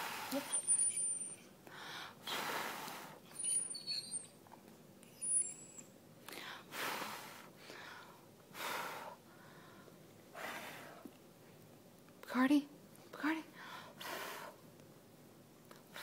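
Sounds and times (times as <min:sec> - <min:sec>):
high squeaky whistles: 0:00.5 - 0:01.5, 0:03.3 - 0:04.4, 0:05.1 - 0:06.0.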